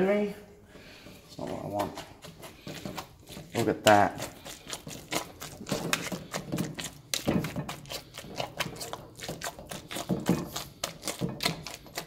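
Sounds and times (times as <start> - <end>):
potato masher knocking on metal bowl: 5.2 - 12.0.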